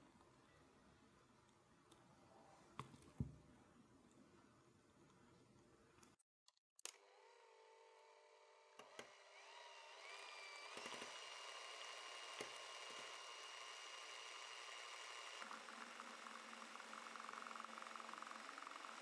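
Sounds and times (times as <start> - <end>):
electric hand mixer whirring: 8.8 - 19.0.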